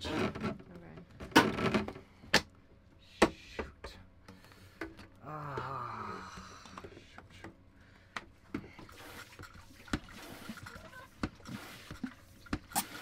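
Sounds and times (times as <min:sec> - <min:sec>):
faint water sloshing: 0:07.7 - 0:13.0.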